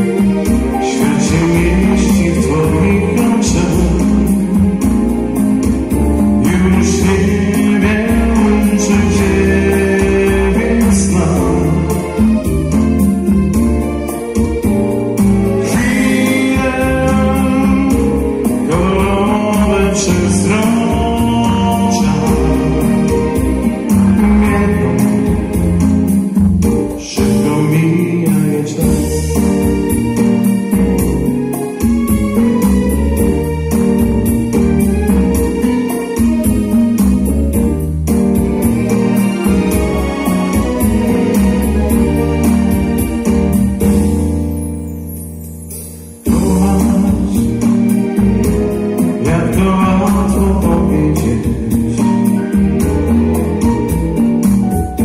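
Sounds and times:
person singing: 0.0s - 13.2s, 15.4s - 32.6s, 46.2s - 55.0s
programmed beat: 0.0s - 27.5s
bass: 0.0s - 55.0s
electronic keyboard chords: 0.0s - 55.0s.

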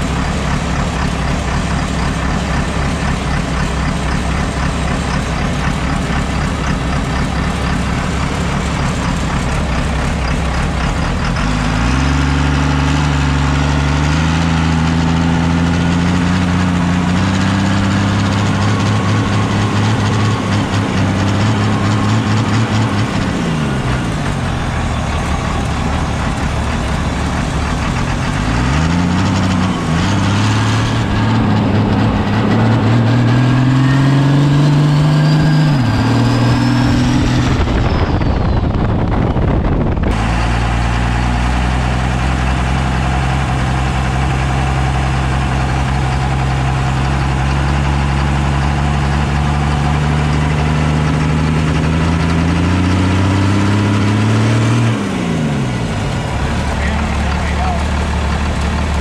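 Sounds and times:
diesel engine idling: 0.0s - 59.0s
diesel engine revving: 0.0s - 59.0s.

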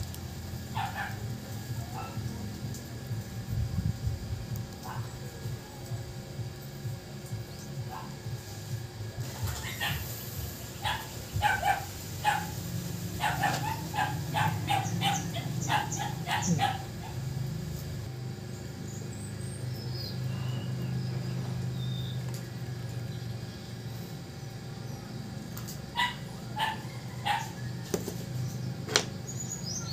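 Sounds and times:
steady low hum: 0.0s - 29.9s
animal barking: 0.7s - 2.4s, 4.8s - 5.2s, 7.9s - 8.3s, 9.2s - 17.6s, 25.9s - 27.9s.

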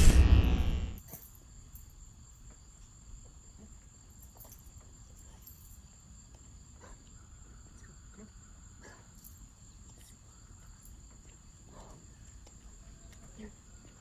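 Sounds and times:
logo sound effect: 0.0s - 1.0s.

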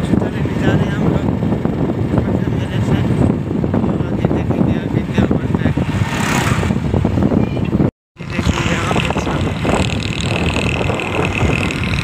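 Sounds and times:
wind rushing over microphone: 0.0s - 12.0s
motorcycle engine running: 5.3s - 12.0s.

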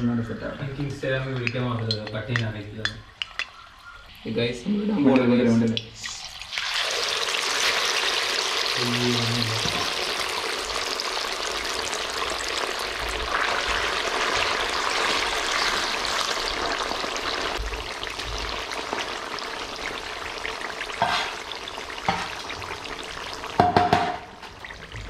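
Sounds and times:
fish sizzling in hot oil: 6.1s - 25.0s.

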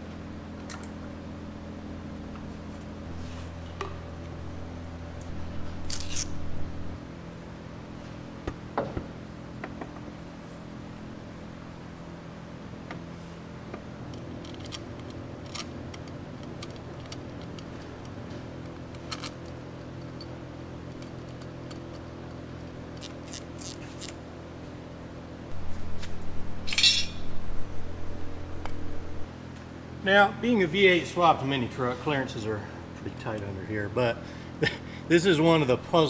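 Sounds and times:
steady background hum: 0.0s - 36.0s.

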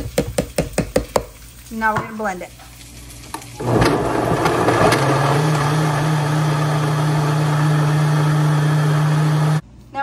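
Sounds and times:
blender motor running: 3.6s - 9.6s.

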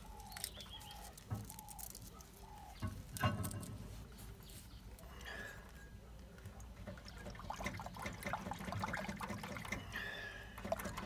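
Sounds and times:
bird calling: 0.0s - 3.2s.

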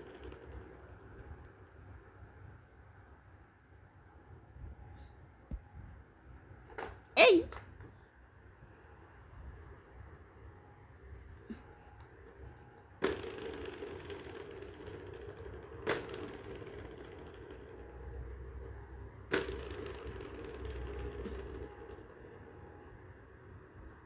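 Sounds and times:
ball rolling round plastic track: 0.0s - 3.2s, 11.1s - 24.0s
cat toy clacks: 19.3s - 22.1s.

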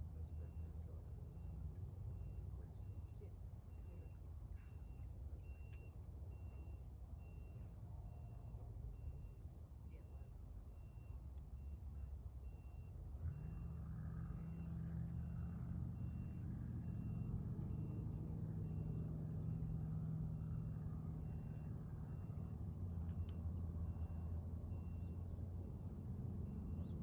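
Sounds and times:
engine hum: 0.0s - 27.0s
reversing beeper: 12.5s - 19.7s.

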